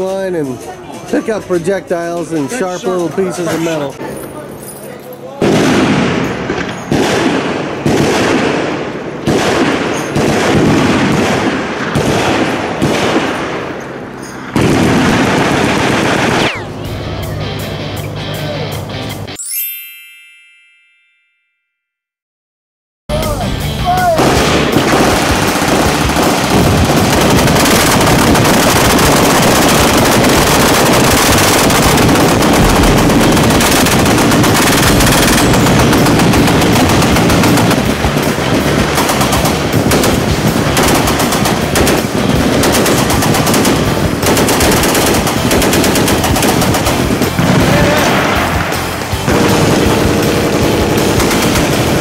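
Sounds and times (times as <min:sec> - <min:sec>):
machine gun automatic fire: 0:05.4 - 0:13.7, 0:14.5 - 0:16.7, 0:24.2 - 0:52.0
gunfire from firing line: 0:05.4 - 0:16.7, 0:24.2 - 0:52.0.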